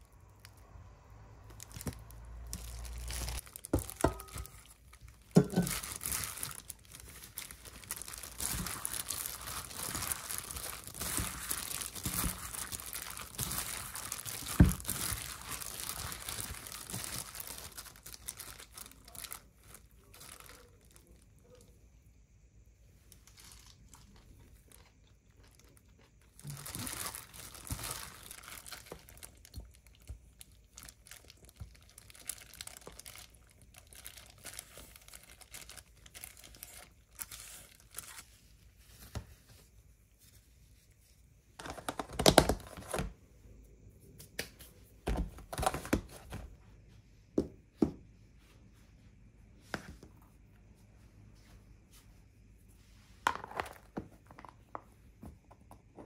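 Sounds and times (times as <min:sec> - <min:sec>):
plastic glove crinkling: 0:00.0 - 0:21.7, 0:23.0 - 0:43.1.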